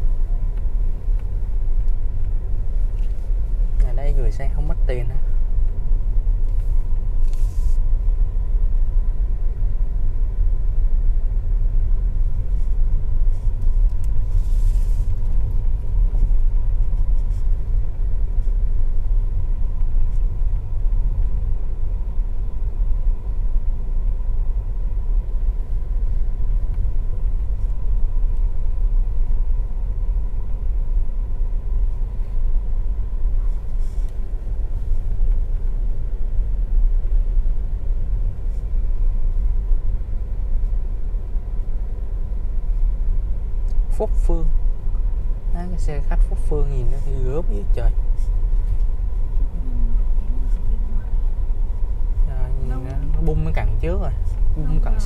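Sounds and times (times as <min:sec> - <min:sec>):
car road and engine rumble: 0:00.0 - 0:55.0
brief hiss: 0:07.2 - 0:07.8.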